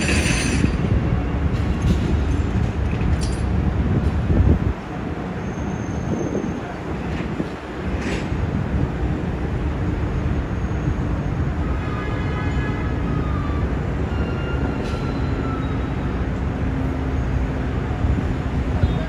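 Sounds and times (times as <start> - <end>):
truck engine rumbling: 0.0 - 11.8.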